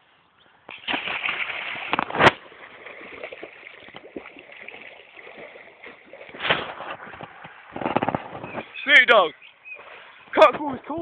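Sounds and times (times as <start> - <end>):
loud splash: 0.7 - 7.0
water splashing around swimmer: 0.7 - 7.6
water sloshing: 0.7 - 8.8, 9.7 - 10.5.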